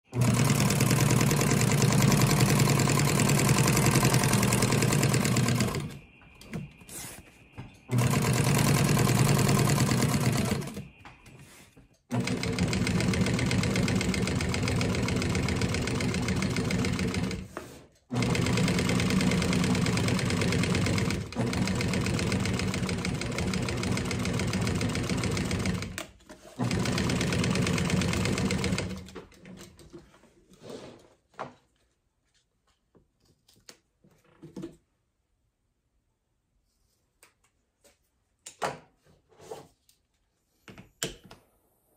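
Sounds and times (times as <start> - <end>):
sewing machine stitching: 0.1 - 6.1, 7.8 - 11.0, 12.1 - 29.8.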